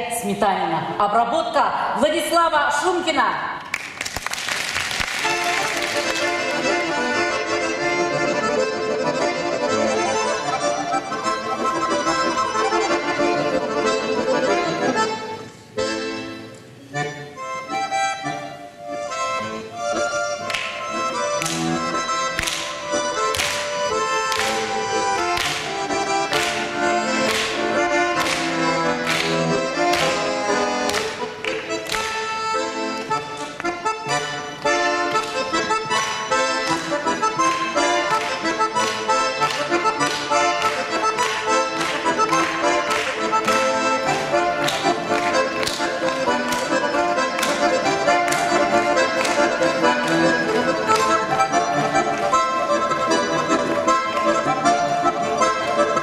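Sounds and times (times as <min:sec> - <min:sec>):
accordion playing folk tune: 0:04.4 - 0:56.0.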